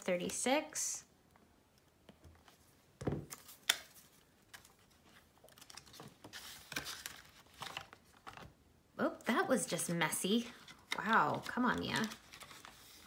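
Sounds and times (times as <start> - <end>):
paper rustling: 3.4 - 8.5, 10.4 - 13.0.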